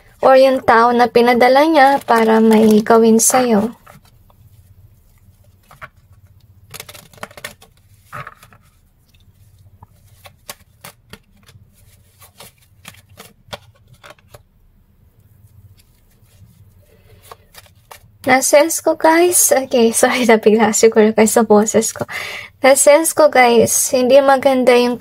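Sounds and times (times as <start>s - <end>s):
cards being shuffled: 1.3s - 14.5s, 15.6s - 18.4s.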